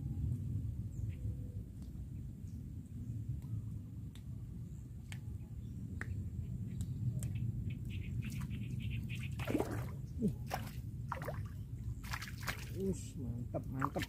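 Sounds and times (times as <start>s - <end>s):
low steady rumble: 0.0s - 14.0s
water splashing and dripping: 9.2s - 14.0s.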